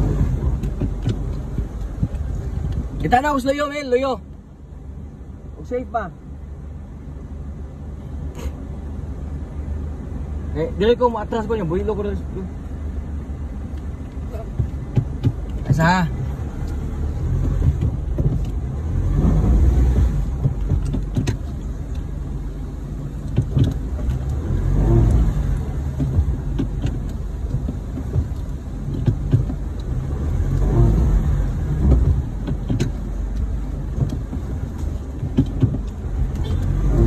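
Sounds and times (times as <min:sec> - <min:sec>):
vehicle engine revving: 0:00.0 - 0:03.2, 0:14.2 - 0:37.0
small knocks and rattles: 0:19.8 - 0:22.1, 0:23.2 - 0:30.0, 0:31.7 - 0:36.8.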